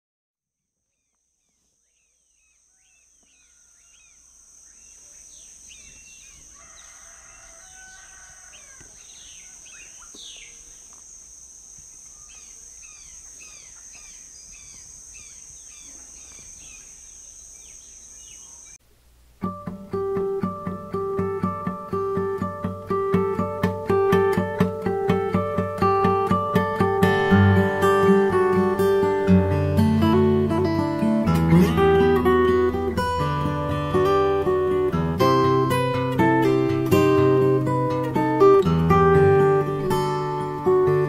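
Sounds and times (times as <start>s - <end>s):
birds chirping: 0.9s - 18.8s.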